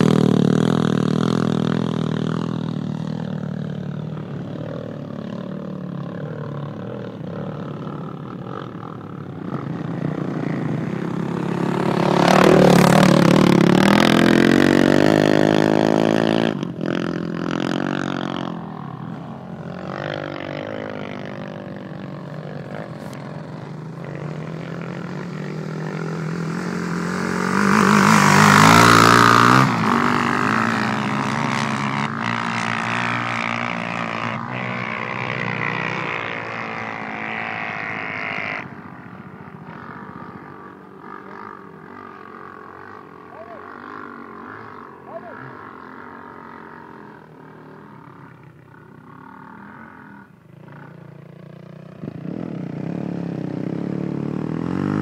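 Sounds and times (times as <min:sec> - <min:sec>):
quad engines revving: 0:00.0 - 0:55.0.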